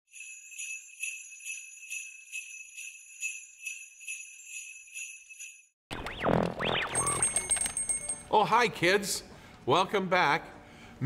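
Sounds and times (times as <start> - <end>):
sleigh bells shaken: 0.1 - 5.7, 7.0 - 8.6.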